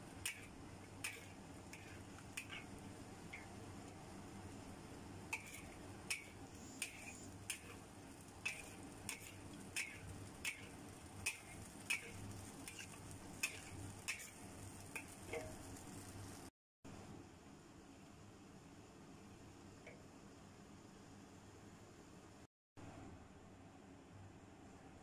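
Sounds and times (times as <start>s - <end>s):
metal spatula scraping a wok: 0.2s - 2.8s, 5.3s - 15.6s.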